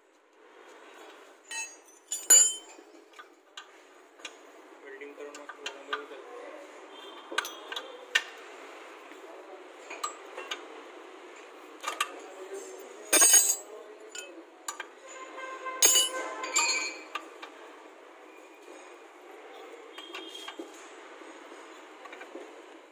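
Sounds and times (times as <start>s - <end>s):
metallic clanks: 1.5s - 2.8s, 13.1s - 13.7s, 15.8s - 17.0s
spanners clinking on metal: 1.5s - 2.8s, 13.1s - 14.3s, 15.8s - 17.0s.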